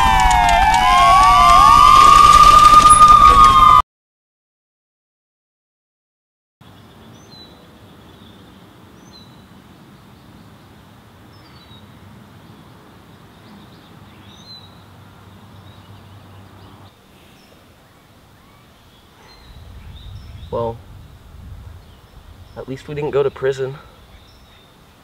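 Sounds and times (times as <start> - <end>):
birds chirping: 6.6 - 25.0.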